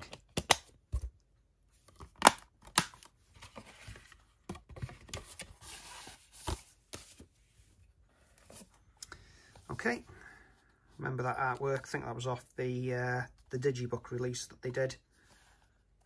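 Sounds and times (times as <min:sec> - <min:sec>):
plastic cases clicking and snapping: 0:00.0 - 0:00.8, 0:01.9 - 0:03.1.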